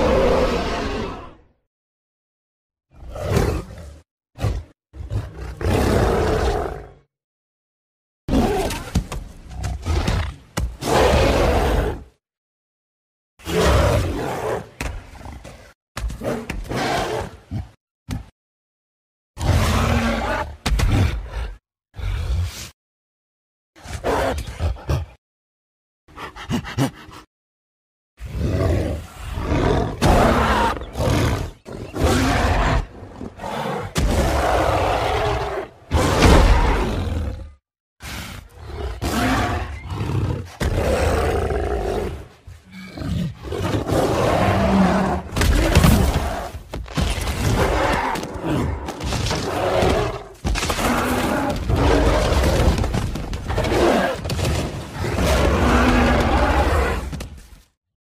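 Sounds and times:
giant ape roaring and growling: 0.0 - 1.5, 2.9 - 7.1, 9.5 - 12.2, 13.4 - 17.8, 19.4 - 22.8, 28.2 - 57.2.

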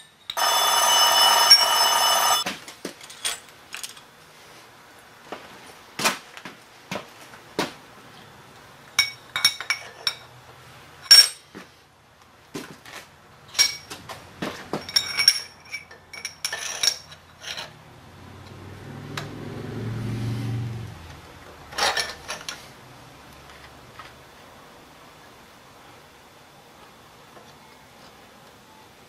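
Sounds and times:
metal tools clinking on steel table: 9.0 - 10.3, 11.0 - 11.5, 13.5 - 13.9, 14.8 - 17.8, 21.7 - 22.6.

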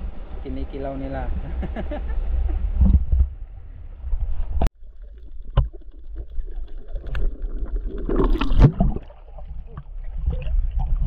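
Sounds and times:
underwater seawater rumble: 2.3 - 11.0.

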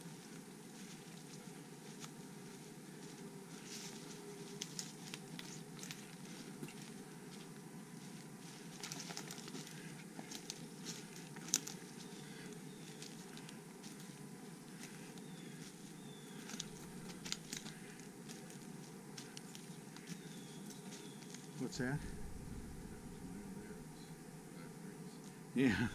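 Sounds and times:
footsteps crunching dry leaves: 0.0 - 23.2
twig snapping: 16.4 - 17.8.

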